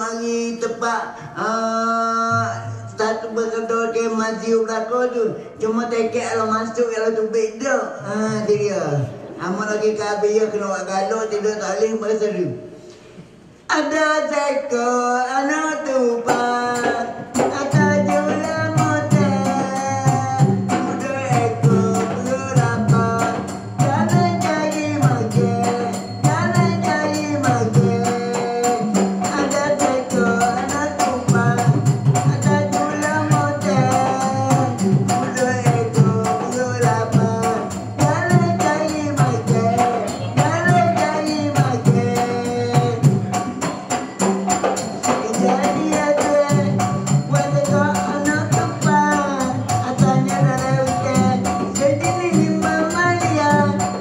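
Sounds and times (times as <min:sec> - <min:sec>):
fast drumming: 0:16.2 - 0:54.0
low drum notes: 0:16.3 - 0:54.0
small cymbals jingling: 0:16.8 - 0:54.0.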